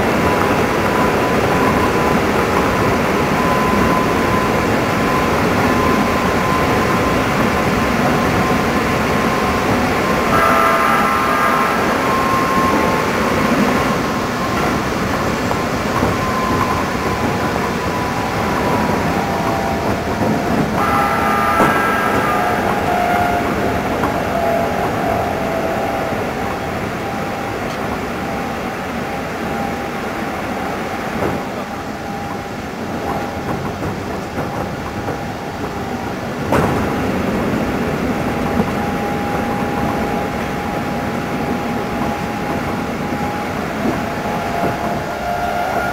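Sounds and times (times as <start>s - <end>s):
faint drifting tones: 0.0s - 33.3s
train wheels rumbling on rail: 0.0s - 45.9s.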